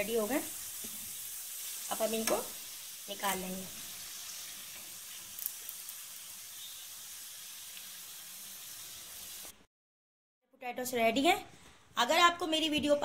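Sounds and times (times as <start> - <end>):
potatoes frying in oil: 0.0 - 9.6.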